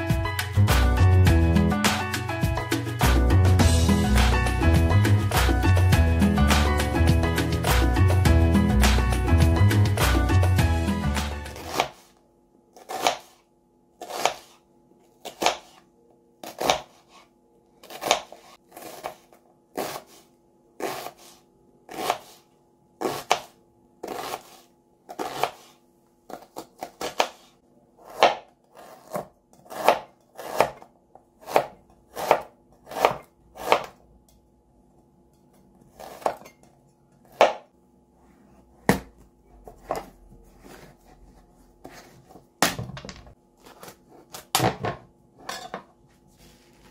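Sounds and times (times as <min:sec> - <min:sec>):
knife chopping onion on board: 0:11.2 - 0:12.1, 0:12.8 - 0:13.4, 0:14.0 - 0:14.6, 0:15.2 - 0:15.8, 0:16.4 - 0:17.2, 0:17.8 - 0:20.2, 0:20.8 - 0:22.4, 0:23.0 - 0:25.7, 0:26.3 - 0:34.0, 0:35.8 - 0:36.6, 0:37.2 - 0:37.7, 0:38.8 - 0:40.9.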